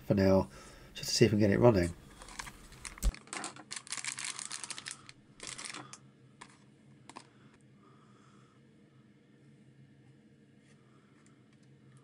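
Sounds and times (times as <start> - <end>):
plastic clicks and rattles: 2.3 - 7.3.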